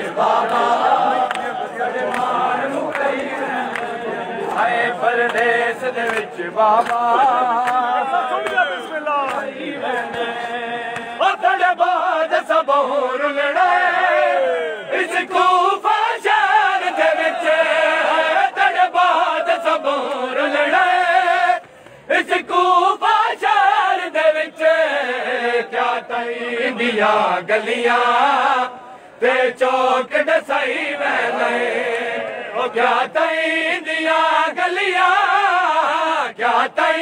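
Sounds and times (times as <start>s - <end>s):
men chanting in unison: 0.0s - 37.0s
sharp hand slaps: 10.0s - 11.2s.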